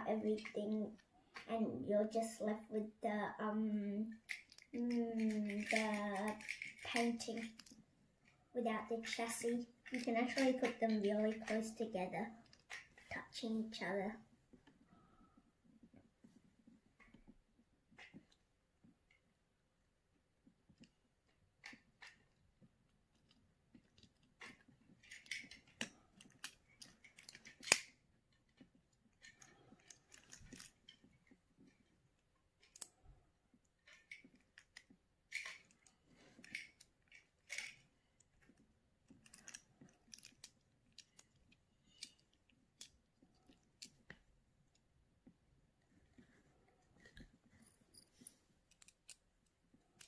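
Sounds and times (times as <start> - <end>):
plastic clicks and snaps: 23.1 - 31.2, 32.6 - 33.0, 48.7 - 49.3.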